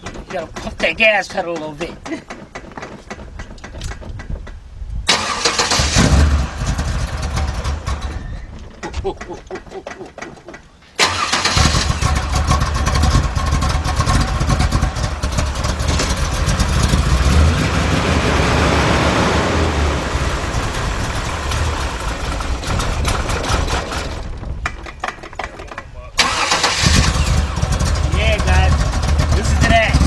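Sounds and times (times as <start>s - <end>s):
car engine starting and running: 5.1s - 8.4s, 11.0s - 24.6s, 26.2s - 30.0s.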